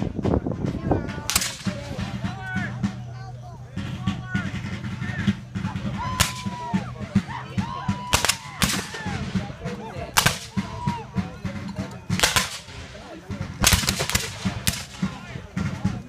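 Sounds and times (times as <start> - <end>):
musket shots: 1.3 - 2.1, 6.1 - 6.6, 8.1 - 9.1, 10.2 - 10.6, 12.1 - 15.3.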